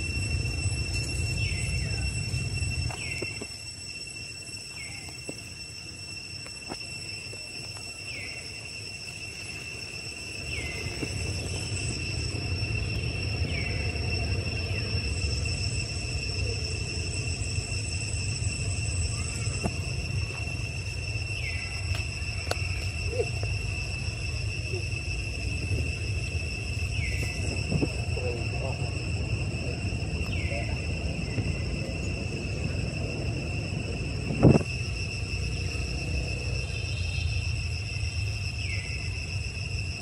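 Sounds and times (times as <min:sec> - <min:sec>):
insects droning: 0:00.0 - 0:40.0.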